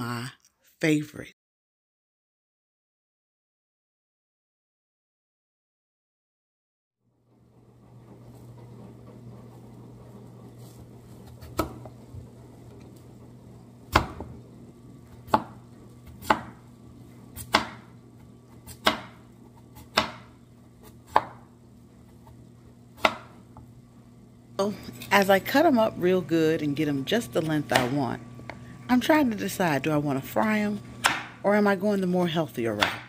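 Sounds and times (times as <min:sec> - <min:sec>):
steady low hum: 0:07.2 - 0:33.0
knife chopping on wooden board: 0:11.2 - 0:11.9, 0:13.9 - 0:14.3, 0:15.3 - 0:16.6, 0:17.4 - 0:17.9, 0:18.6 - 0:21.5, 0:23.0 - 0:23.4, 0:31.0 - 0:31.4, 0:32.8 - 0:33.0.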